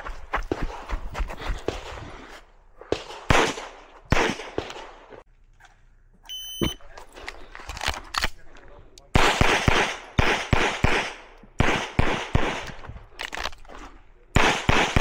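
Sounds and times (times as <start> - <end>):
pistol gunshots: 2.8 - 5.2, 9.1 - 12.9, 14.3 - 15.0
shot timer beep: 6.3 - 6.8.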